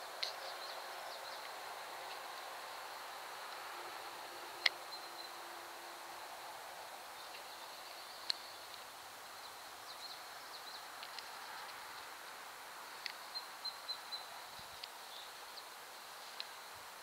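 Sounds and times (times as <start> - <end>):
soft steady hiss: 0.0 - 17.0
faint clicks: 4.6 - 4.8, 11.0 - 11.8.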